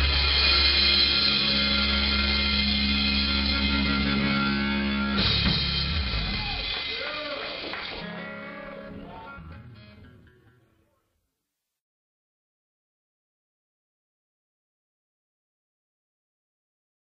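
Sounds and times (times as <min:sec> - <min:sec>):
rock band playing: 0:00.0 - 0:10.6.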